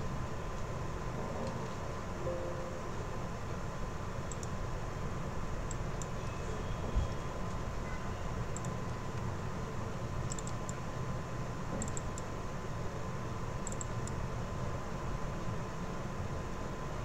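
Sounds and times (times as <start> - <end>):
faint steady tone: 2.1 - 4.5
computer mouse clicking: 4.3 - 4.6, 5.7 - 6.2, 8.5 - 9.3, 10.2 - 10.8, 11.8 - 12.3, 13.6 - 14.2.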